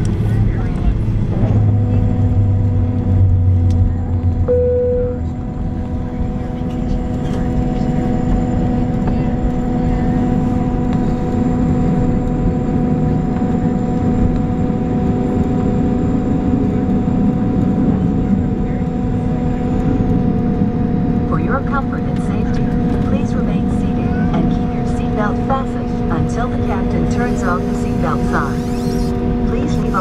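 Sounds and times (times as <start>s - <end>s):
jet engines humming: 0.0s - 30.0s
tyres rumbling on taxiway: 0.0s - 30.0s
short single tone: 4.4s - 5.5s.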